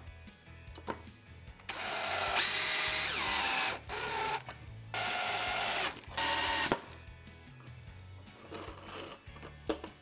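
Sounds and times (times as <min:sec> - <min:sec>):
cordless drill whirring: 0:01.7 - 0:06.8.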